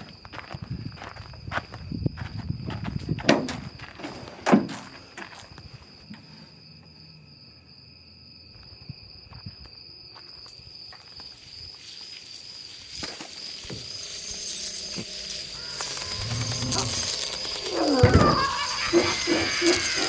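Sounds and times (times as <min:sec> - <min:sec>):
crickets droning: 0:00.0 - 0:20.0
hiss: 0:11.4 - 0:20.0.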